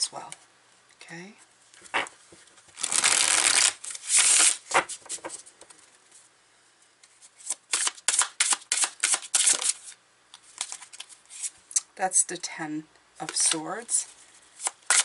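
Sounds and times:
cards being shuffled: 1.8s - 6.0s, 7.0s - 11.6s, 14.6s - 15.0s.

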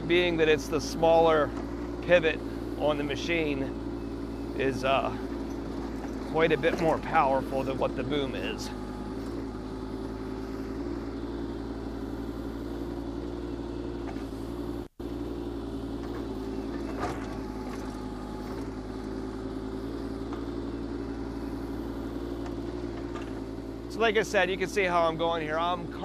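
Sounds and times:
diesel excavator engine running: 0.0s - 26.0s
excavator bucket digging: 4.6s - 11.4s, 15.9s - 21.4s, 22.3s - 23.5s.

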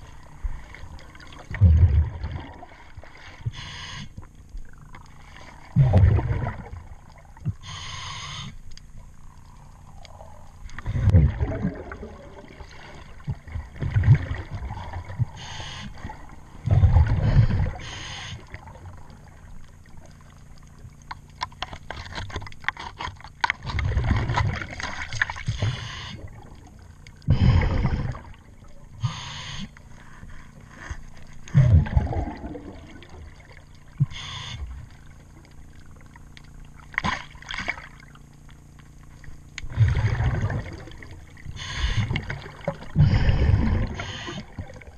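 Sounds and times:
hiss of inhalation: 3.5s - 4.1s, 7.6s - 8.6s, 15.4s - 16.0s, 17.3s - 18.5s, 29.0s - 29.7s, 34.1s - 34.6s, 41.6s - 42.2s, 43.2s - 44.5s.

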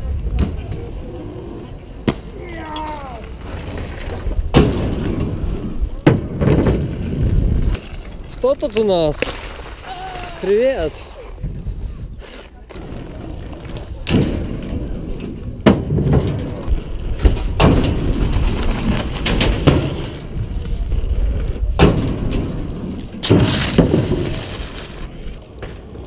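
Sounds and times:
skate wheels rumbling on asphalt: 0.0s - 26.0s
skates knocking on ramp edges: 21.8s - 25.0s.

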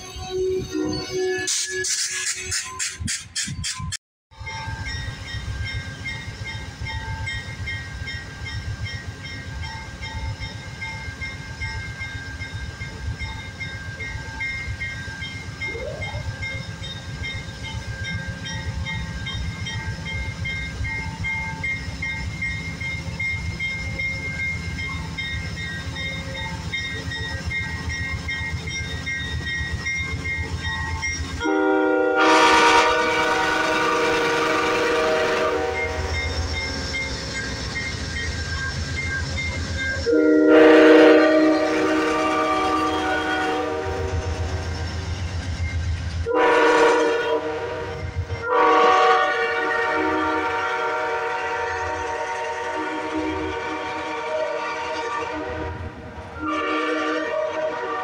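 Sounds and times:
diesel locomotive engine rumble: 0.0s - 58.0s
train horn blast: 31.4s - 36.2s, 40.1s - 44.4s, 46.2s - 58.0s.

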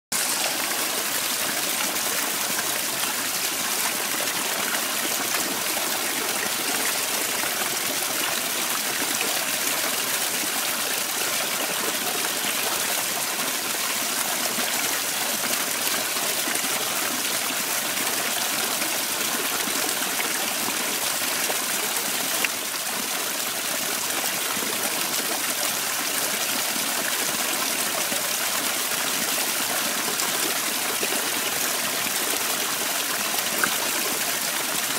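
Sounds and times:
waterfall splashing into pond: 0.1s - 34.9s.

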